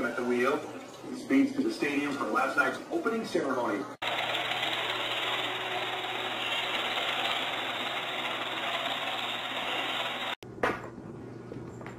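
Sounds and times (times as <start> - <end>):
robot vacuum cleaner humming: 4.0 - 10.4.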